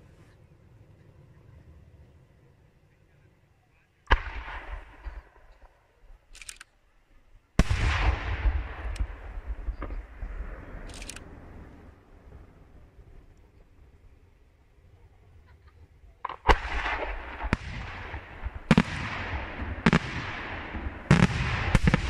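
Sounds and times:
firework bang with rolling echo: 4.1s - 5.5s, 7.6s - 10.9s, 16.2s - 22.0s.

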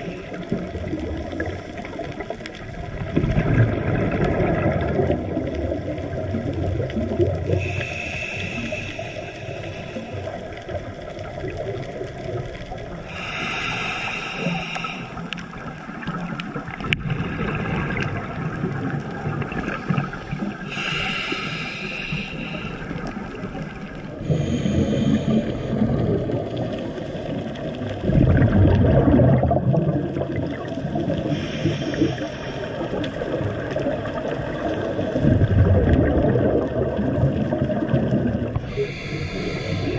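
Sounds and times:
low bubbling rumble: 0.0s - 13.1s, 15.0s - 39.9s
muffled underwater rush: 0.0s - 39.9s
regulator breathing hiss: 7.6s - 10.6s, 13.1s - 15.4s, 20.6s - 23.2s, 24.2s - 25.8s, 31.2s - 32.8s, 38.6s - 39.9s.

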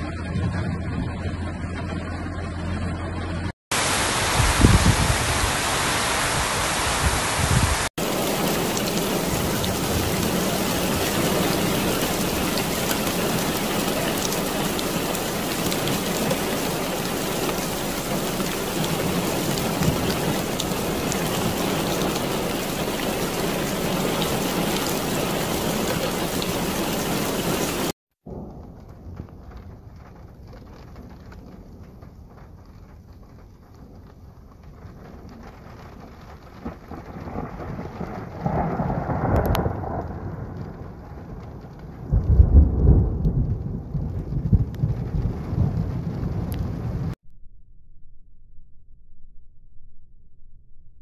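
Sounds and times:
heavy rain pouring: 3.7s - 47.2s
low thunder rumble: 6.9s - 47.2s.

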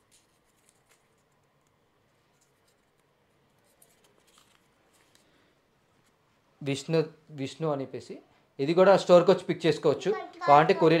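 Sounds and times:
paper crinkling and rustling: 0.0s - 5.4s.

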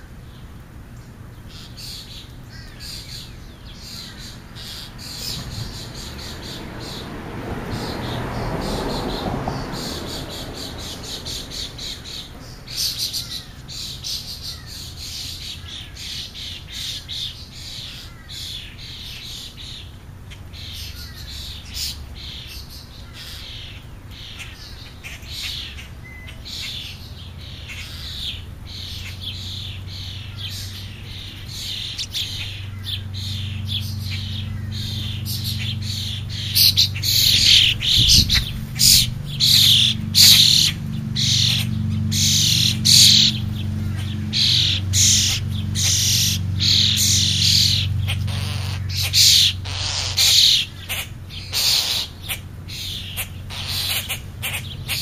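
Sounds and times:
birds calling: 0.0s - 55.0s
steady low hum: 9.2s - 55.0s.

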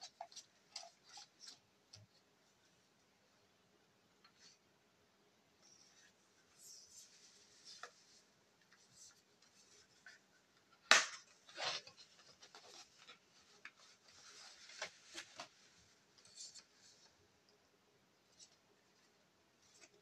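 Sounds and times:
paper and card rustling: 5.7s - 17.2s.

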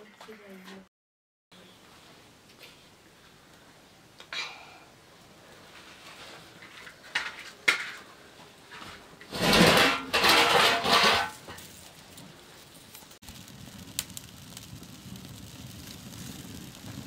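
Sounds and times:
cookware clattering and scraping: 6.6s - 8.1s, 8.7s - 11.6s.

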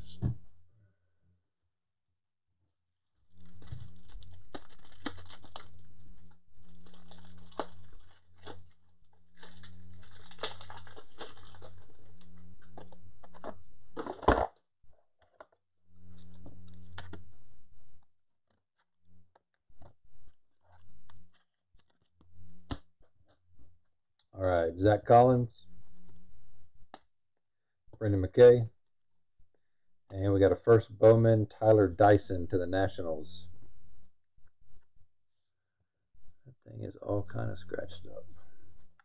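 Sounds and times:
plastic packaging rustling: 3.3s - 12.3s.

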